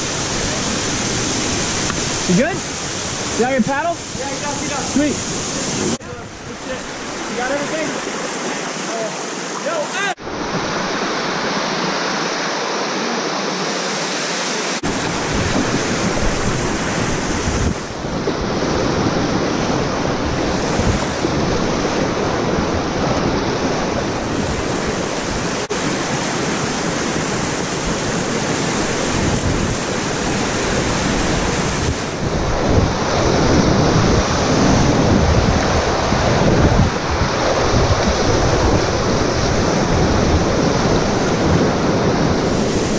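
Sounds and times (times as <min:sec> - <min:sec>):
whitewater rushing and splashing: 0:00.0 - 0:42.9
wind buffeting microphone: 0:14.8 - 0:25.9, 0:26.5 - 0:42.9.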